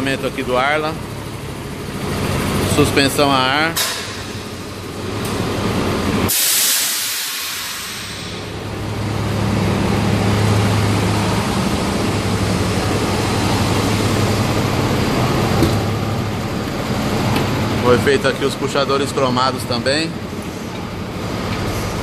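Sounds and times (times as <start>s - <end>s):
diesel truck engine idling: 0.0s - 22.0s
air suspension hissing: 6.2s - 8.6s.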